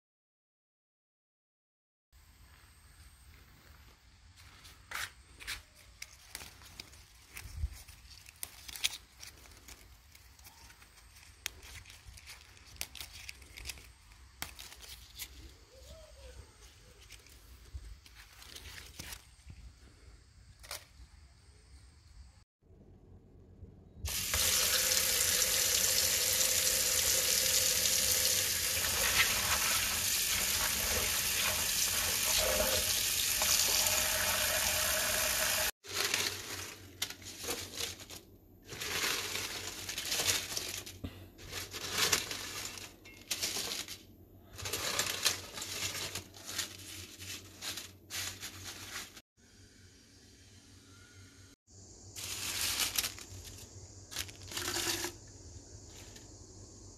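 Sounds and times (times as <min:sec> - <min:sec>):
leaves rustling: 0:03.8 - 0:19.5, 0:24.1 - 0:49.2, 0:52.1 - 0:55.2
tap water running into bowl: 0:24.1 - 0:35.7.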